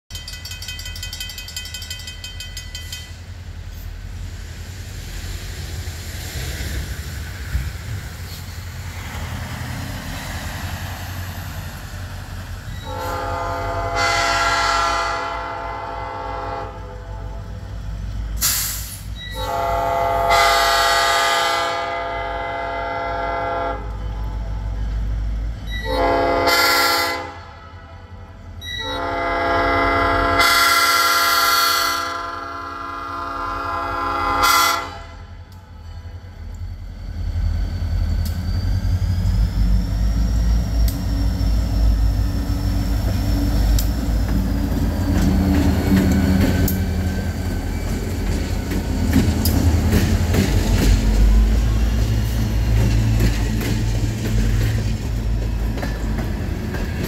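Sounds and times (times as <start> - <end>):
train air horn blasts: 12.8 - 17.6, 18.4 - 24.2, 25.7 - 35.4.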